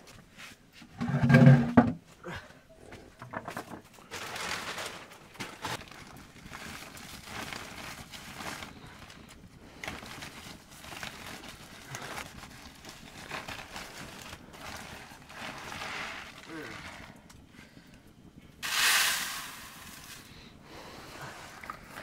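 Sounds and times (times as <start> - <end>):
plastic bags rustling: 3.5 - 17.2, 18.6 - 22.0.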